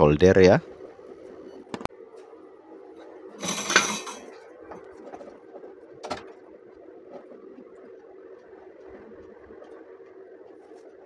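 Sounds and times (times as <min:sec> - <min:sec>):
steady low hum: 0:00.0 - 0:11.0
tools and wires clattering: 0:03.4 - 0:05.3.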